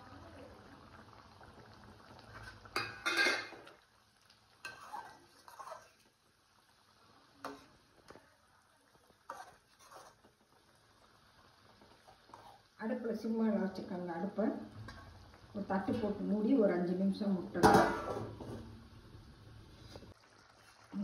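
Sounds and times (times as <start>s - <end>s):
spatula scraping and clinking pan: 2.4s - 3.7s, 4.6s - 5.9s.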